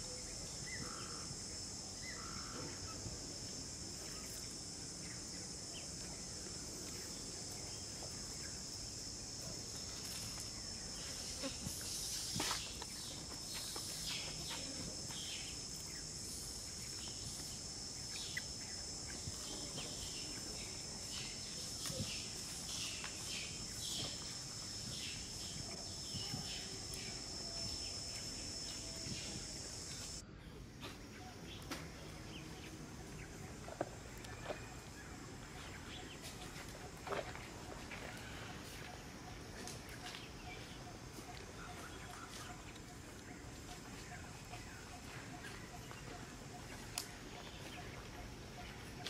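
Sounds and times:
insects droning: 0:00.0 - 0:49.0
scuff: 0:12.1 - 0:14.4.

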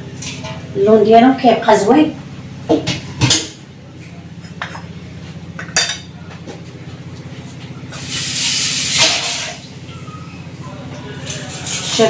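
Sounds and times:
steady low hum: 0:00.0 - 0:12.0
loud hiss: 0:08.0 - 0:09.6.

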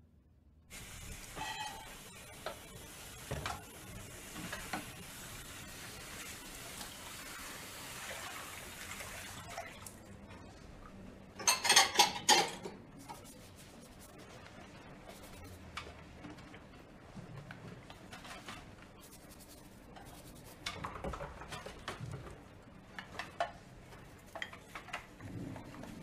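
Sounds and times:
kitchen hiss: 0:00.7 - 0:09.6
pots and dishes clattering: 0:01.3 - 0:02.6, 0:11.4 - 0:12.8.

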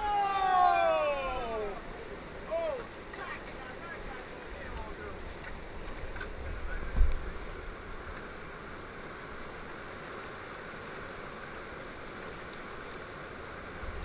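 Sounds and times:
river rapids rushing: 0:00.0 - 0:06.6.

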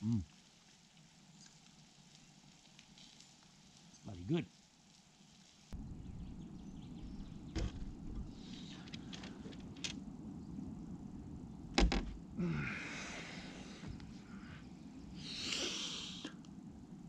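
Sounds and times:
heavy thump: 0:07.5 - 0:08.4, 0:11.7 - 0:12.2.

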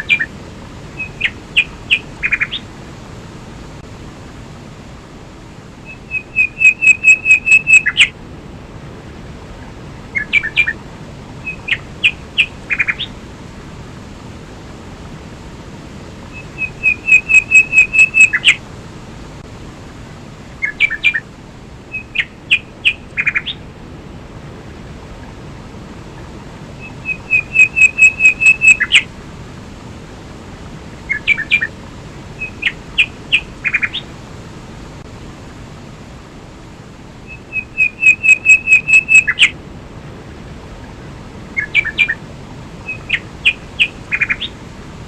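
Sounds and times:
bird chirping: 0:00.0 - 0:00.3, 0:01.0 - 0:02.6, 0:05.8 - 0:08.1, 0:10.1 - 0:10.8, 0:11.4 - 0:13.1, 0:16.3 - 0:18.6, 0:20.6 - 0:21.2, 0:21.9 - 0:23.6, 0:26.8 - 0:29.0, 0:31.1 - 0:31.7, 0:37.3 - 0:39.5, 0:41.6 - 0:42.2, 0:42.8 - 0:44.5
waterfall and stream rushing: 0:00.0 - 0:45.0.

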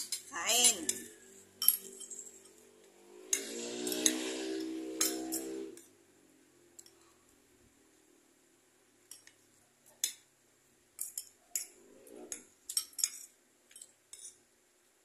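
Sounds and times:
cutlery clinking on ceramic plate: 0:00.0 - 0:02.6, 0:05.0 - 0:05.6, 0:11.0 - 0:14.4.

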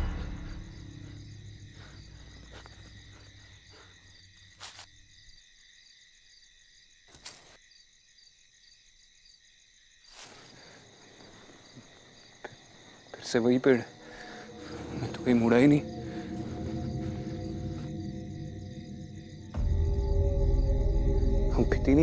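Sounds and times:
low music drone: 0:00.0 - 0:03.8, 0:14.0 - 0:22.0
crickets chirping: 0:00.0 - 0:22.0.

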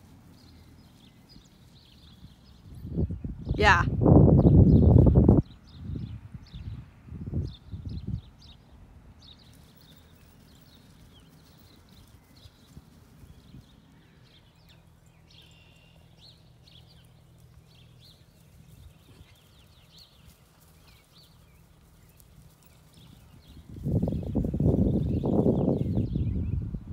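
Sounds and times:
muffled hoofbeats on grass: 0:00.0 - 0:03.3, 0:09.2 - 0:26.3.

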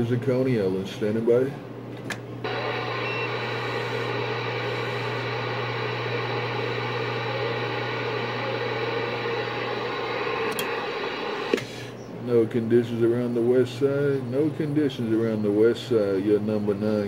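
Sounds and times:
radio click: 0:02.4 - 0:11.9
low hum: 0:02.4 - 0:12.0
radio static hiss: 0:02.4 - 0:12.4.

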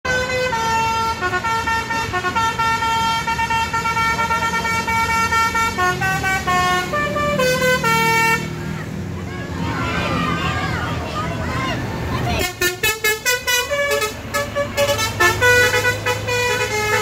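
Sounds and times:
multi-tone bus horn playing a tune: 0:00.0 - 0:08.8, 0:12.4 - 0:17.0.

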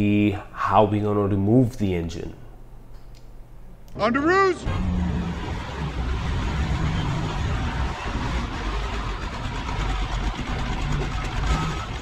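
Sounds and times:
forklift engine running: 0:04.6 - 0:12.0.

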